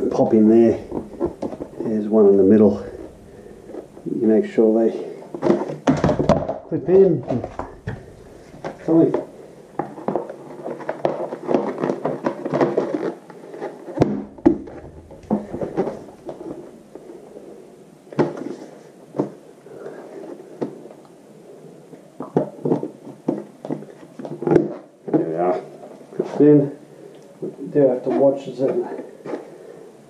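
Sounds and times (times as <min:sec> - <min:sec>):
plastic rustling and rubbing: 0:00.0 - 0:21.0.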